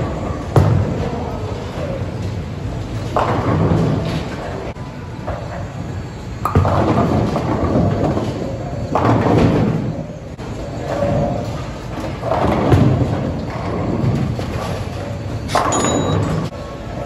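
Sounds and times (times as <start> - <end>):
bowling balls rolling: 0.0 - 17.0.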